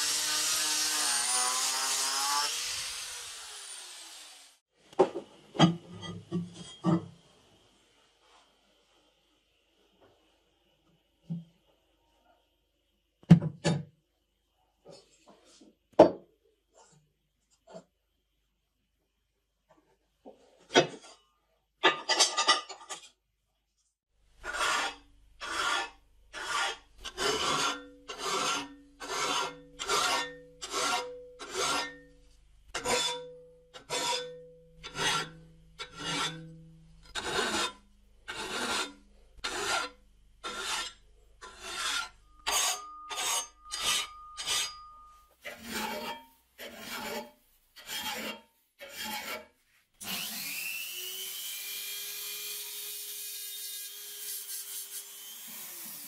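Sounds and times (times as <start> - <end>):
file scraping metal: 0.0 - 4.3, 24.4 - 50.2, 52.5 - 56.0.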